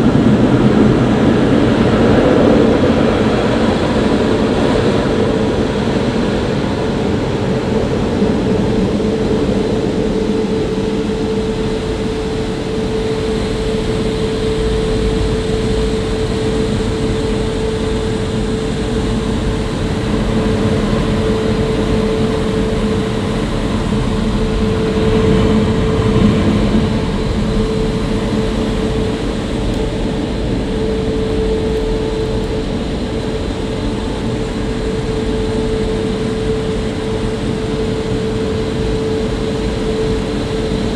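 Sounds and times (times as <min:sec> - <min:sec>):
constant hum: 0:00.0 - 0:40.9.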